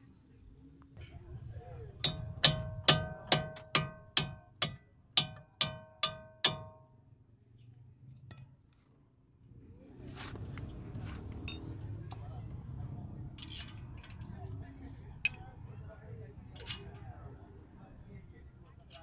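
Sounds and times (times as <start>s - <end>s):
hammer striking metal: 1.9s - 6.8s
faint handling scrapes: 10.0s - 11.4s
small metal clicks: 13.3s - 14.4s, 16.5s - 17.1s.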